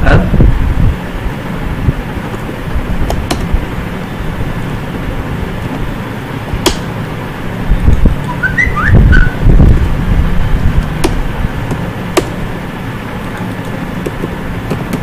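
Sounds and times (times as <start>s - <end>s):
low background hum: 0.0s - 15.0s.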